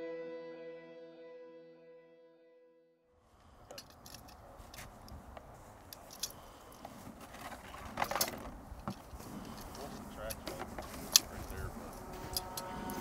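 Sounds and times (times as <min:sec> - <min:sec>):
wind rumbling on microphone: 0:03.4 - 0:13.0
snow crunching and clicking: 0:03.6 - 0:13.0.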